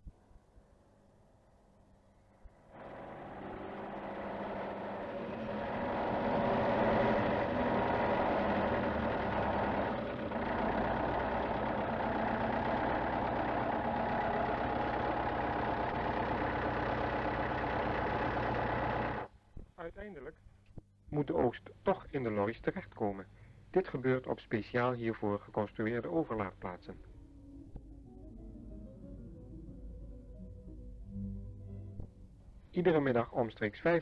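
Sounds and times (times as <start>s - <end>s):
tractor engine running: 2.6s - 19.3s.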